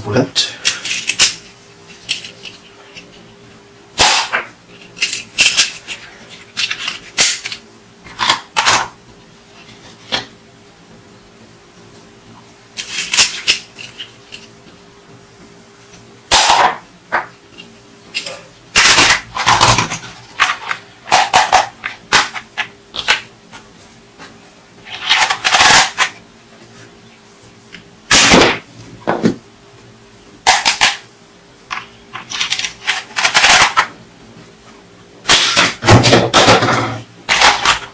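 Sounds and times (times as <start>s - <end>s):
plastic toys clattering on table: 4.0s - 9.0s, 18.2s - 23.2s, 24.9s - 26.2s, 31.7s - 33.9s, 35.3s - 37.9s.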